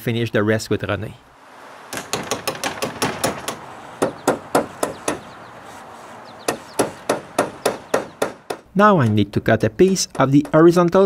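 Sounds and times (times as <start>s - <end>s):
hammer blows: 1.7s - 8.7s.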